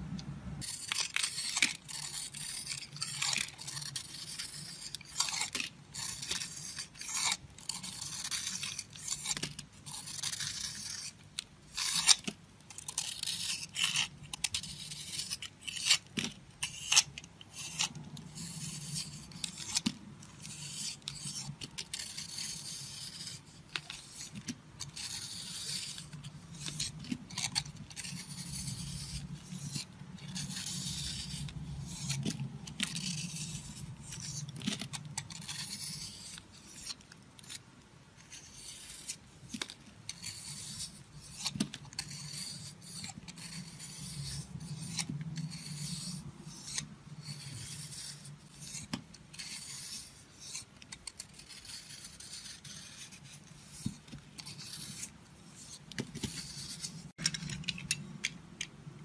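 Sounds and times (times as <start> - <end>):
knife blade scraping soap: 0.6 - 58.4.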